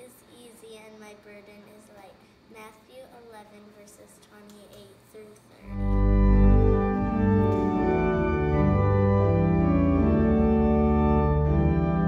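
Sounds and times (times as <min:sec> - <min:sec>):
church organ chords: 0:05.6 - 0:12.0.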